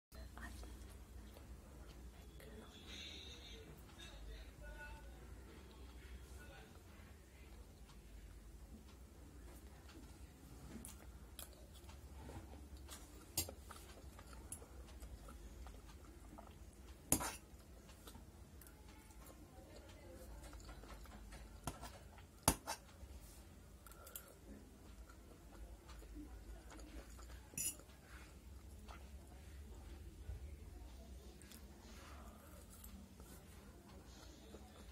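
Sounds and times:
soft chewing: 0.1 - 34.9
cutlery clinking on metal plate: 27.5 - 27.9.

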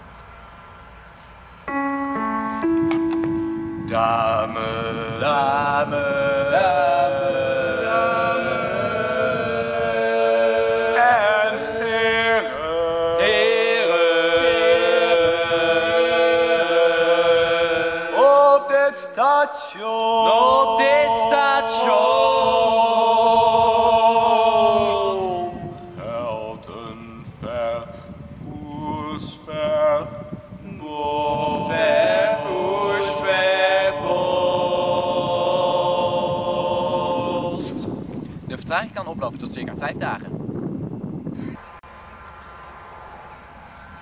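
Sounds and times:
young men chanting: 3.9 - 27.9, 28.5 - 38.0.

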